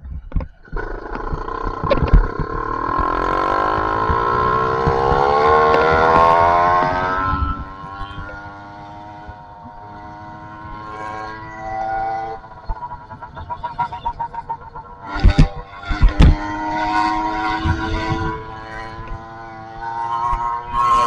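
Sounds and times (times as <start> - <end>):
wind rumble on microphone: 0.0 - 11.5, 12.2 - 21.0
two-stroke engine revving: 0.6 - 21.0.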